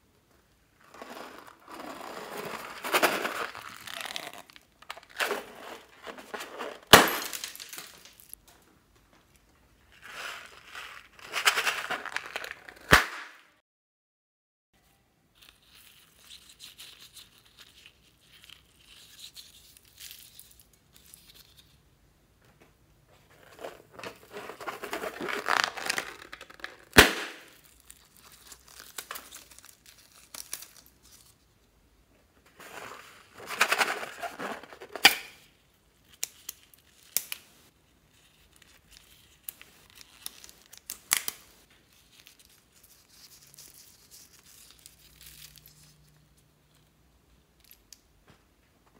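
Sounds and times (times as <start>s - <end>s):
rubber balloons crinkling: 0.8s - 8.4s, 23.3s - 31.2s, 32.5s - 35.4s
balloon snaps: 12.8s - 13.5s, 26.9s - 27.6s.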